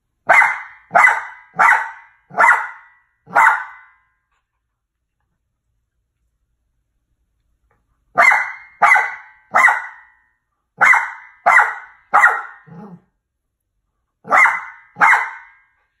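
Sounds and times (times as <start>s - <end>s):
small dog barking: 0.3s - 4.0s, 8.1s - 10.2s, 10.8s - 13.1s, 14.2s - 15.6s.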